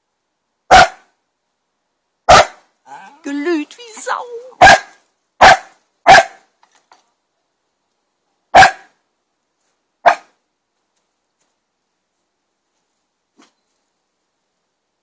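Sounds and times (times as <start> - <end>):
dog barking: 0.7 - 1.1, 2.3 - 2.6, 4.6 - 6.5, 8.5 - 9.0, 10.0 - 10.4.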